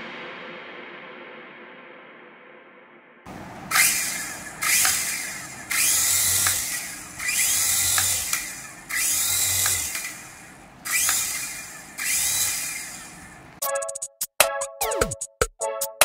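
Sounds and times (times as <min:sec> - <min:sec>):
toy helicopter rotors whirring: 0:03.7 - 0:13.6.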